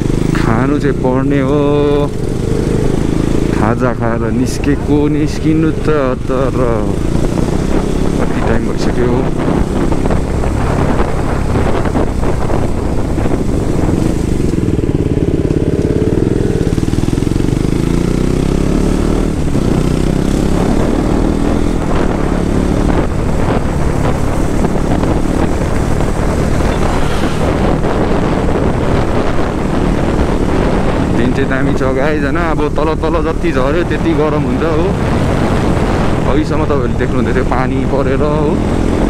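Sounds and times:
motorcycle engine revving: 0.0 - 39.0.

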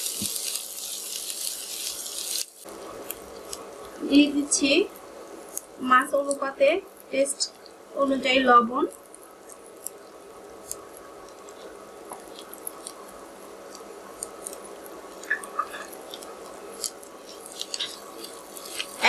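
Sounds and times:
masala sizzling in oil: 0.0 - 19.0
spoon stirring in pan: 9.0 - 19.0.

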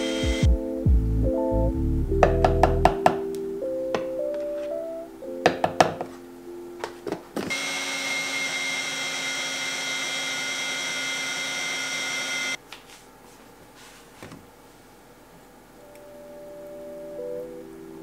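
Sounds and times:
blender running: 0.0 - 0.5, 7.5 - 12.6
light plucked music: 0.0 - 7.2, 15.8 - 18.0.

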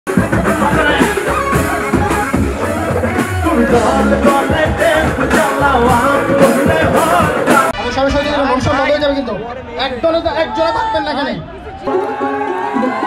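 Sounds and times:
steady drum beat: 0.1 - 7.8
man singing: 2.6 - 7.8.

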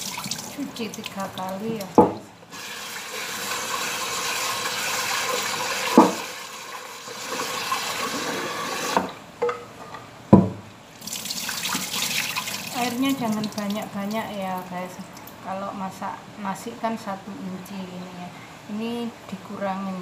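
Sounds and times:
water sloshing and pouring: 0.0 - 2.0, 11.0 - 14.3
tap running into pot: 5.6 - 6.4
pot knocking: 5.9 - 6.3.

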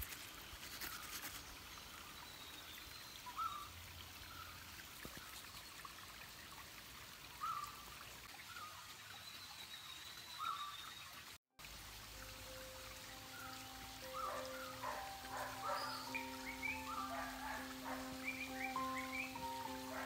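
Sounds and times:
stream trickling over rocks: 0.0 - 20.0
bird chirping: 12.5 - 20.0.

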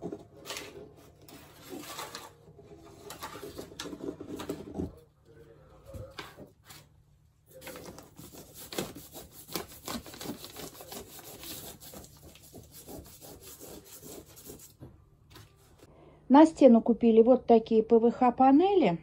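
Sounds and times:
hand rubbing wallpaper: 7.6 - 15.9.

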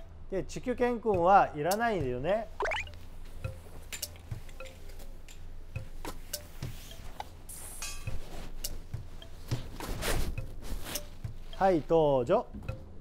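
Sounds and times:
parka fabric rustling: 5.9 - 12.4.

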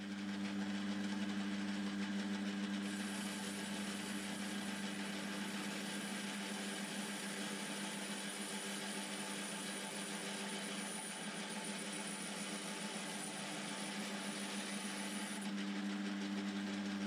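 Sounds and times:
metal lathe motor hum: 2.8 - 16.2
lathe tool cutting hiss: 2.9 - 15.4.

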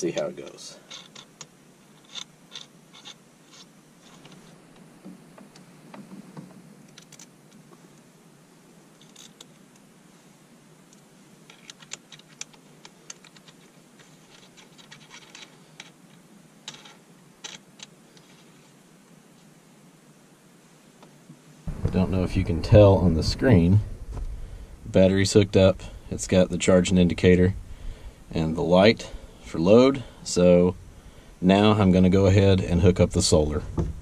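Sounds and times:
connectors clicking and scratching: 0.0 - 7.6, 10.9 - 18.7.

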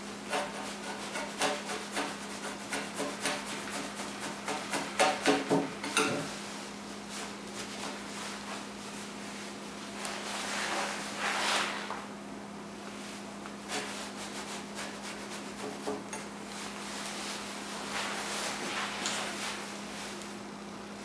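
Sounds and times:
chisel shaving wood: 0.3 - 5.6.

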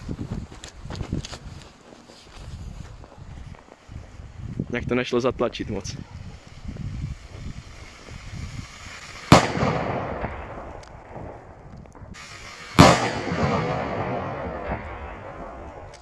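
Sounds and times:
firecracker bangs: 6.3 - 16.0
rolling echo: 9.3 - 16.0.

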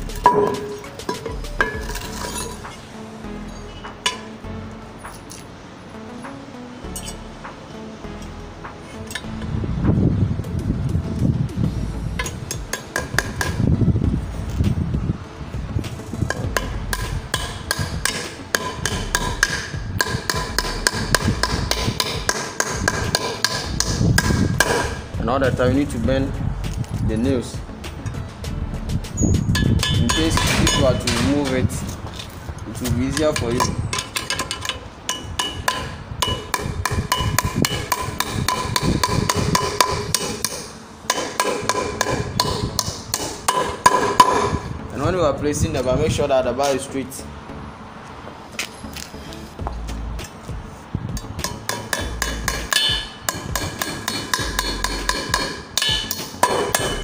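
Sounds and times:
hammer striking nails with metallic ring: 12.2 - 13.6, 16.3 - 25.0, 29.6 - 31.4, 33.1 - 44.7, 51.4 - 57.0.

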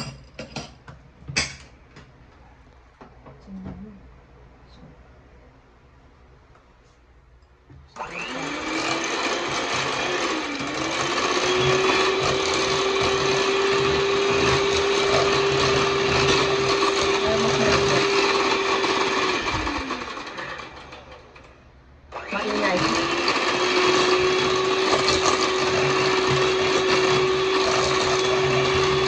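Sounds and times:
electric hand mixer whine: 8.0 - 21.5, 22.1 - 29.0.

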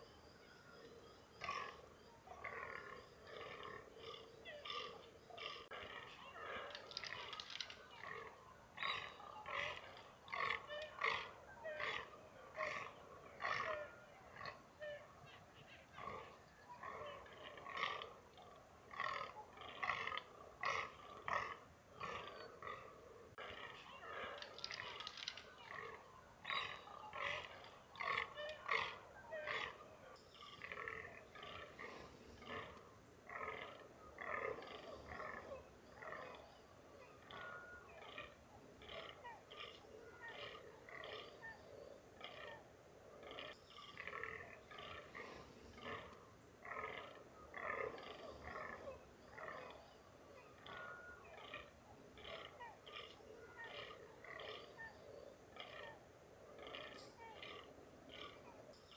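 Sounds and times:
deer mewing: 30.4 - 36.2, 43.2 - 49.6.

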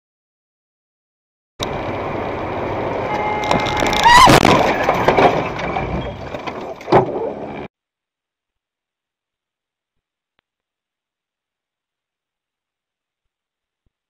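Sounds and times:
road noise: 1.6 - 7.7
rising squeal: 2.7 - 6.7
held tone: 3.0 - 4.4
loud car crash: 3.0 - 7.2
debris rattling and knocking: 3.4 - 7.2.

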